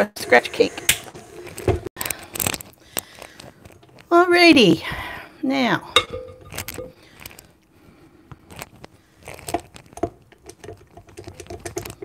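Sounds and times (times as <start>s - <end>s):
utensils knocking glass bowl: 6.0s - 7.0s.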